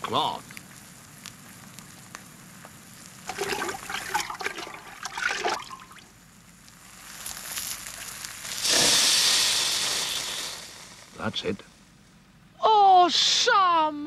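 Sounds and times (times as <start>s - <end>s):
water splashing in metal bucket: 3.3s - 6.0s
loud hiss of steam: 8.4s - 11.6s.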